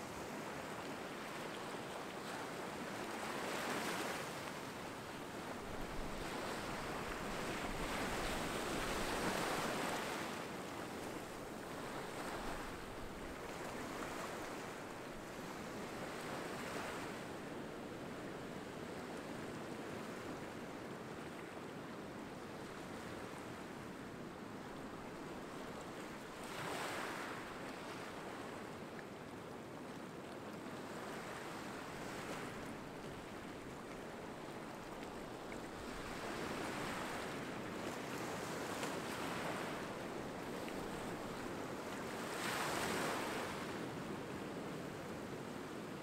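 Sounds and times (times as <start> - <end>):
surf washing up beach: 2.2 - 18.4, 31.0 - 46.0.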